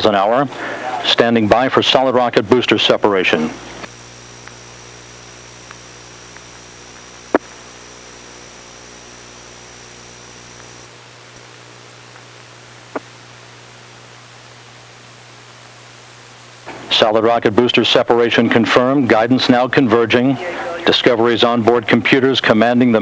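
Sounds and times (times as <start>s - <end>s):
electrical hum with hiss: 2.5s - 16.7s.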